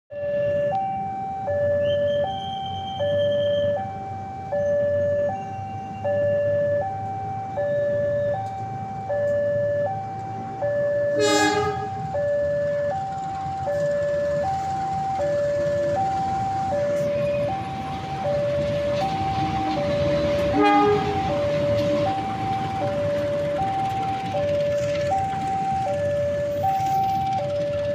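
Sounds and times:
passing train rumble: 0.1 - 27.9
two-tone crossing alarm: 0.1 - 27.9
locomotive horn blast: 11.2 - 12.1, 20.5 - 21.3.

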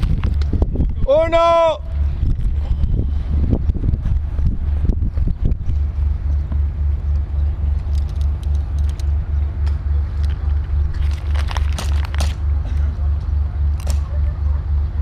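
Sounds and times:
low mechanical throb: 0.0 - 15.0
sharp clicks and snaps: 7.7 - 12.4.

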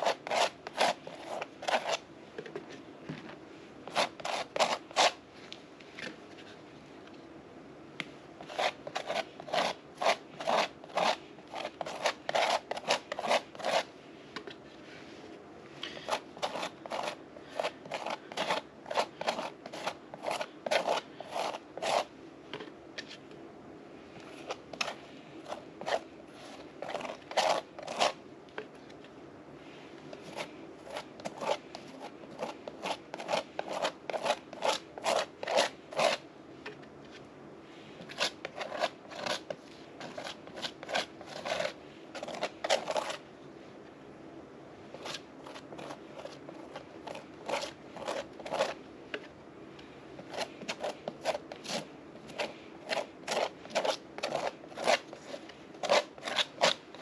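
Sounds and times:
pointed tool scratching a board: 0.0 - 2.0, 3.9 - 5.2, 8.4 - 13.9, 16.0 - 22.1, 24.5 - 28.2, 30.2 - 36.2, 38.1 - 43.2, 45.0 - 48.8, 50.2 - 57.0.

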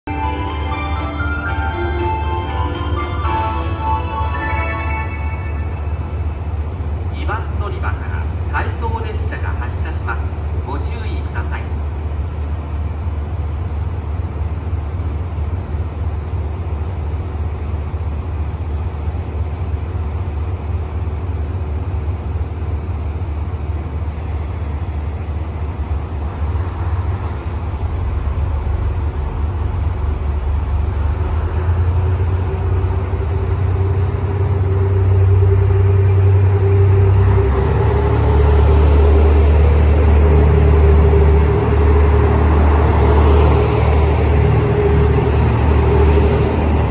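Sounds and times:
diesel railcar engine rumble: 0.0 - 46.9
steady whine: 0.1 - 11.5, 22.8 - 46.9.

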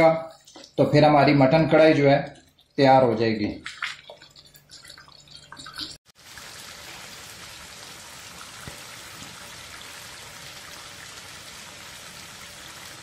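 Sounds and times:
gravy sizzling in oil: 6.0 - 13.0.

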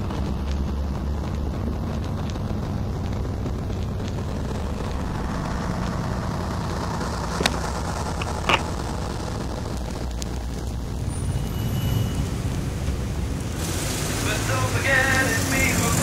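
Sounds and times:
faint crackling clicks: 0.0 - 10.9
city traffic drone: 0.0 - 16.0
hiss: 13.5 - 16.0.

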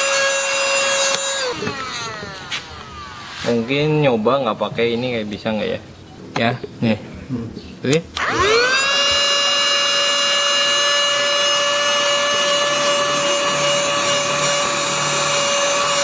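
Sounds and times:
small vacuum motor whining: 0.0 - 4.8, 8.2 - 16.0.

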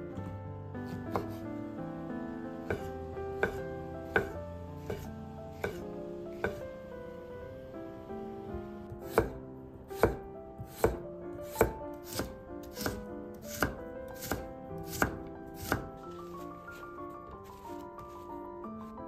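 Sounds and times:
soft background music: 0.0 - 19.0
knife cutting carrot on board: 0.9 - 1.4, 2.6 - 6.6, 9.0 - 9.4, 10.0 - 16.4.

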